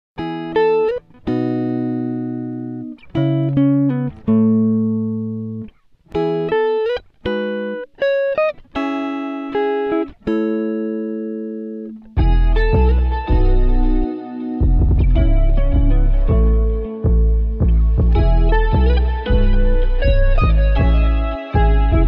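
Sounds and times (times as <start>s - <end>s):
plucked guitar chords: 0.2s - 22.0s
bass: 12.2s - 22.0s.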